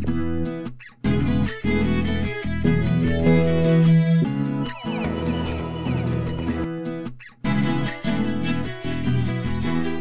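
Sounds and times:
fiddle music: 0:01.1 - 0:10.0
held low note: 0:03.1 - 0:06.7.

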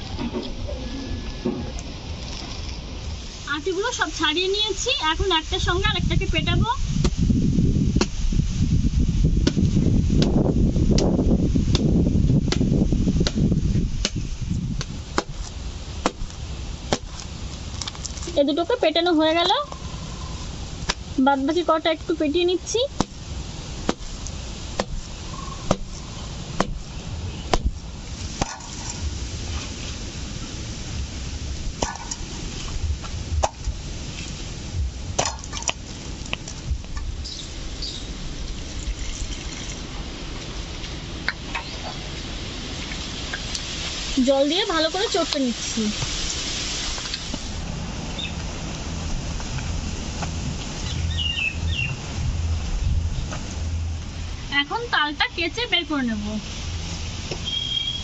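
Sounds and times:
bird chirping: 0:25.2 - 0:27.6, 0:37.2 - 0:38.2, 0:41.6 - 0:42.1, 0:50.8 - 0:52.0, 0:57.4 - 0:58.0.

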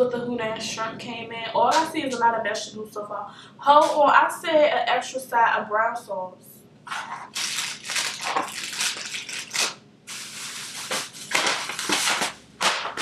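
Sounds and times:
plastic bag crinkling: 0:06.9 - 0:13.0.

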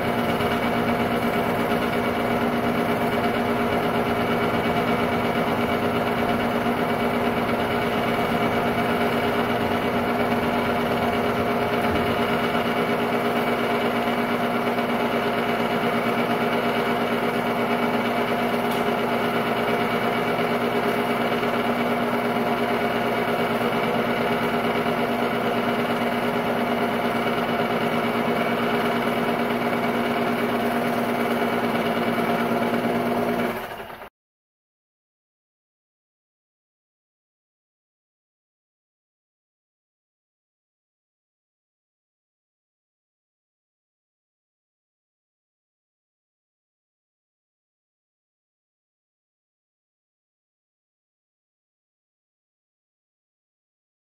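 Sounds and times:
film projector whirring: 0:00.0 - 0:34.1.

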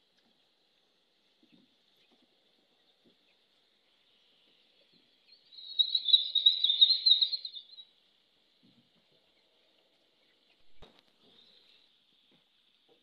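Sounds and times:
high trilling animal call: 0:05.5 - 0:07.8.

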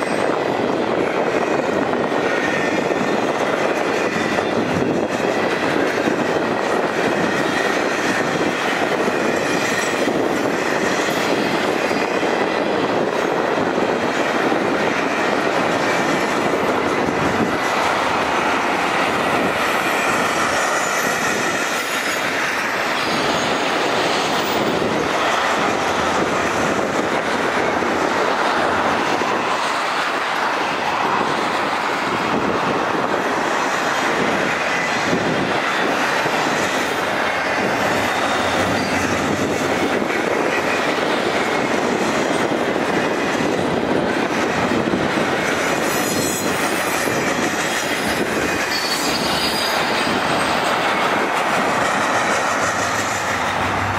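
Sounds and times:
train wheels rumbling on rails: 0:00.0 - 0:53.9
faint wheel squeal: 0:48.7 - 0:50.5.

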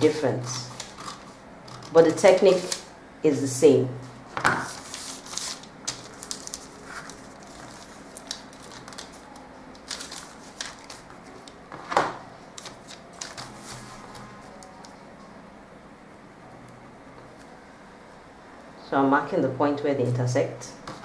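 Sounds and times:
paper rustling and crinkling: 0:04.4 - 0:15.0.

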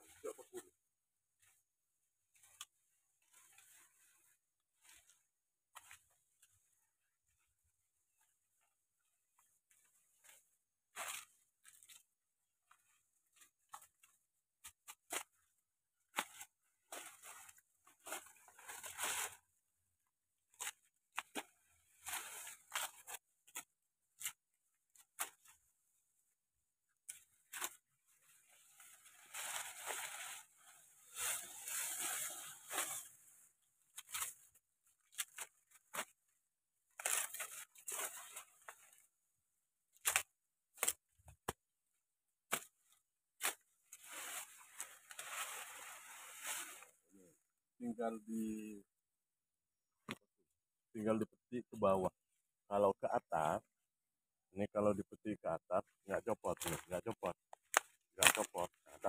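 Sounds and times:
leaves rustling and tearing: 0:16.0 - 0:19.4, 0:20.5 - 0:25.6, 0:27.0 - 0:36.2, 0:36.9 - 0:39.0, 0:39.9 - 0:41.1, 0:42.5 - 0:46.9, 0:56.6 - 0:57.0, 0:57.6 - 0:58.8
stalks snapping: 0:40.0 - 0:41.0, 0:57.6 - 0:58.5.

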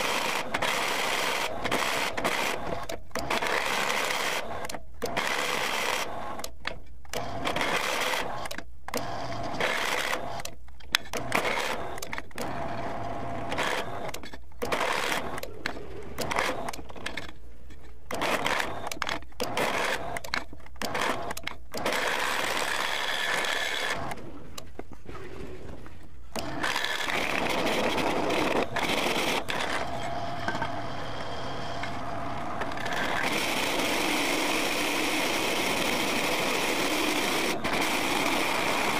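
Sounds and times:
drill press motor running: 0:26.3 - 0:38.9.

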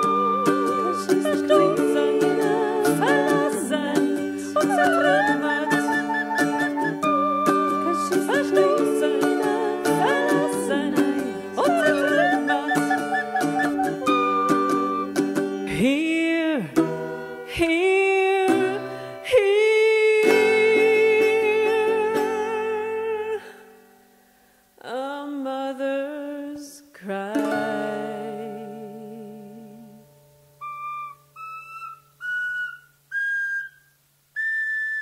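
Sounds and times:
high whistle-like notes: 0:00.0 - 0:03.5, 0:04.4 - 0:10.9, 0:11.6 - 0:15.3, 0:30.6 - 0:35.0
operatic singing with vibrato: 0:00.0 - 0:16.8
toy acoustic guitar: 0:00.0 - 0:23.8, 0:27.2 - 0:33.8.

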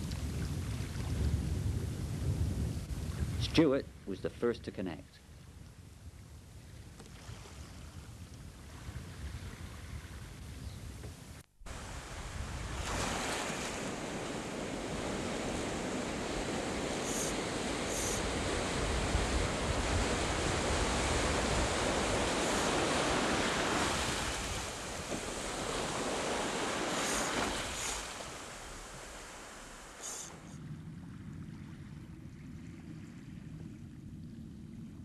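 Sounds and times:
wind buffeting microphone: 0:00.0 - 0:04.1, 0:05.2 - 0:35.0
sea surf washing onto shore: 0:11.7 - 0:30.5
short high hisses: 0:17.0 - 0:18.2, 0:26.9 - 0:28.1, 0:30.0 - 0:30.5.

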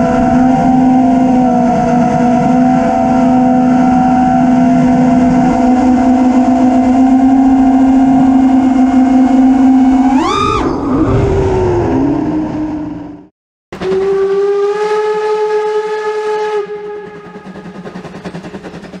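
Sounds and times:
drone motors whining: 0:00.0 - 0:13.3.

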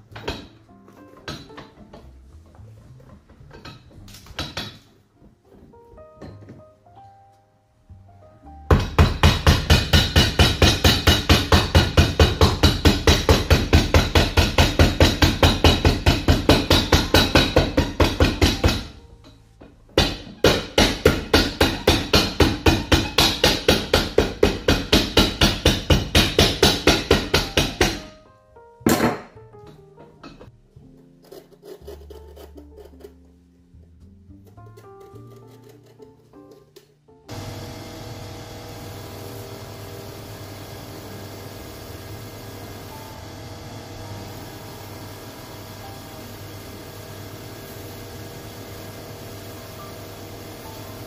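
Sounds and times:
hammer beating shoe sole: 0:08.7 - 0:19.1, 0:19.9 - 0:28.2.

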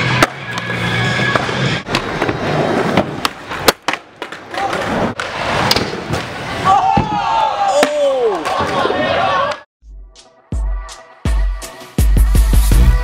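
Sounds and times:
skateboard wheels rolling on concrete: 0:00.0 - 0:09.6
skateboards and bodies hitting ground: 0:00.0 - 0:09.6.

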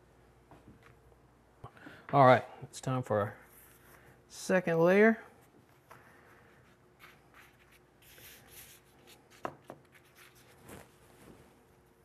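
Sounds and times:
hands rustling pastry sheets: 0:05.4 - 0:12.0.

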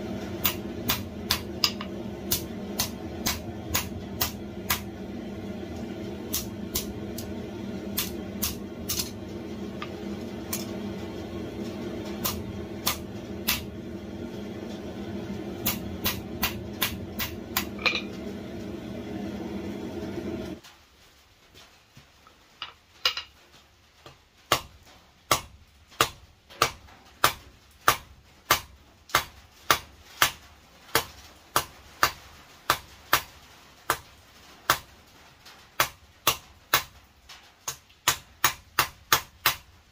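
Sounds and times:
steady low hum: 0:00.0 - 0:20.6
hammer striking steel on anvil: 0:00.4 - 0:14.1, 0:14.7 - 0:18.4.

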